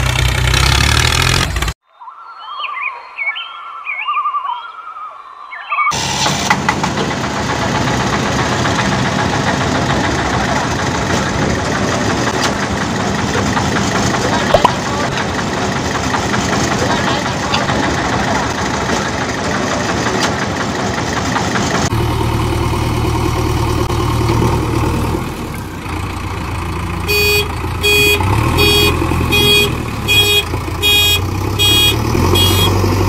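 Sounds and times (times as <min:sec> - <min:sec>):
vehicle engine running: 0:00.0 - 0:01.8, 0:06.0 - 0:33.0
high electronic beeps: 0:27.9 - 0:32.8.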